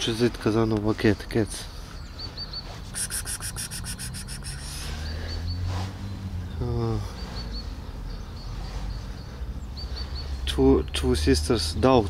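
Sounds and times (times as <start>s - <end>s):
faint high chirps: 1.4s - 5.7s
wavering trill-like call: 2.2s - 5.5s.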